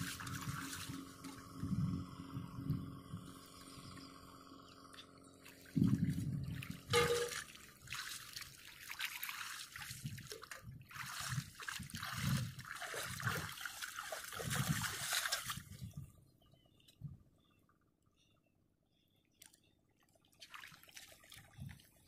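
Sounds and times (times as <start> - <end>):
water sloshing and splashing: 0.0 - 1.8, 4.9 - 16.1, 19.3 - 22.0.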